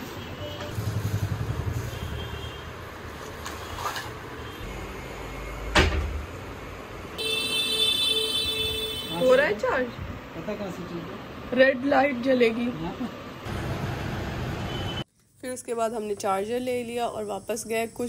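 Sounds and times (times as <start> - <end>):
street traffic noise: 0.0 - 18.0
vehicle horn: 1.8 - 2.7, 7.2 - 9.4.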